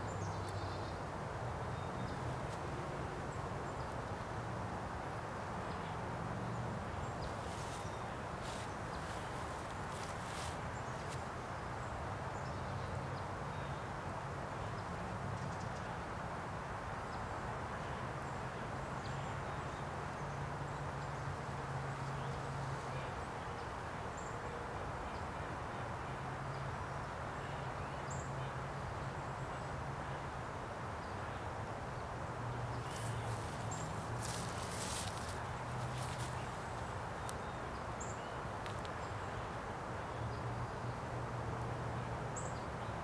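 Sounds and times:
outdoor background hiss: 0:00.0 - 0:43.0
footsteps on dry leaves: 0:07.3 - 0:11.3, 0:32.8 - 0:37.4.

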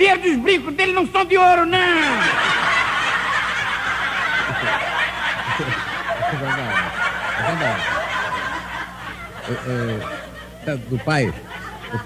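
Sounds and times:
group of people laughing: 0:02.0 - 0:12.0
person chuckling: 0:05.5 - 0:07.8.

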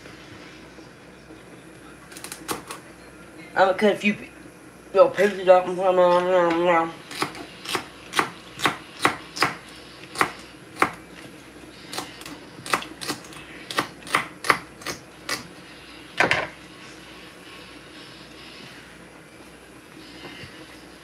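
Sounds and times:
knife chopping celery: 0:07.1 - 0:11.0.

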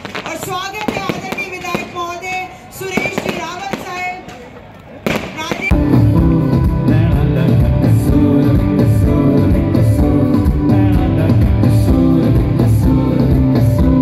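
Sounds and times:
live pop band music: 0:05.6 - 0:14.0
person singing: 0:05.7 - 0:14.0.

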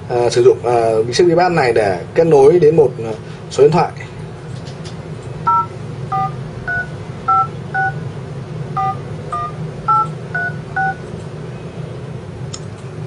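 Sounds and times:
steady low hum: 0:00.0 - 0:13.0
keypad dial tone beeps: 0:05.5 - 0:08.0, 0:08.8 - 0:11.0.

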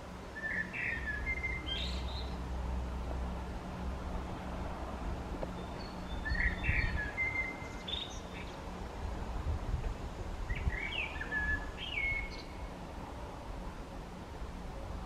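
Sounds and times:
blackbird singing: 0:00.4 - 0:02.4, 0:05.5 - 0:08.6, 0:10.5 - 0:12.7.

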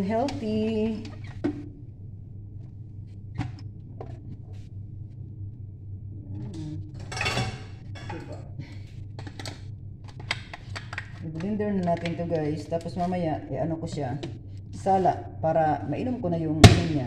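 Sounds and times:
steady low hum: 0:00.0 - 0:17.0
dishes clattering: 0:07.0 - 0:08.4.

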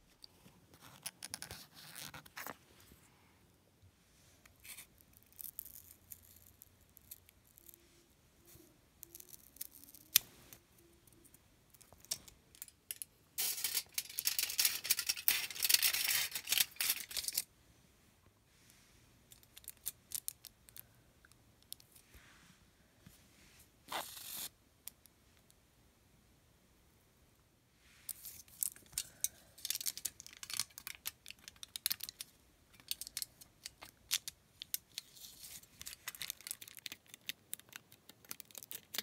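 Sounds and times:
crackling rustle of foil: 0:13.4 - 0:17.4, 0:28.1 - 0:39.0.

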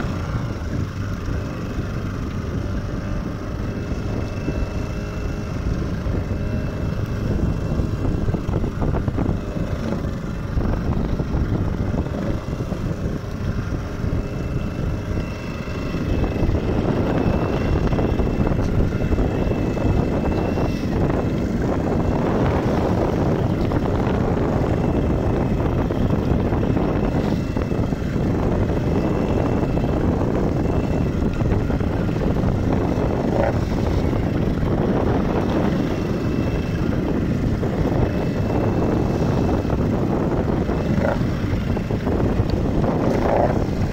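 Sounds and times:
boat engine running: 0:00.0 - 0:43.9
water rushing along hull: 0:00.0 - 0:43.9
wind on microphone: 0:00.0 - 0:43.9.

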